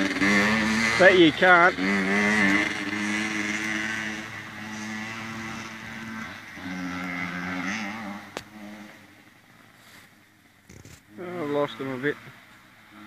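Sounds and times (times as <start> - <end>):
two-stroke dirt bike engines: 0.0 - 13.0.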